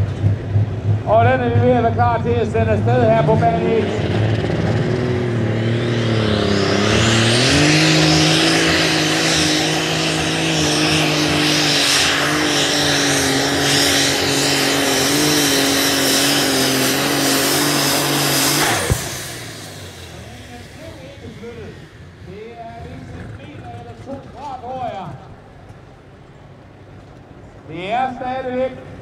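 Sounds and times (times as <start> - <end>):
turbo whine: 0.0 - 23.9
high-revving engine drone: 0.0 - 27.3.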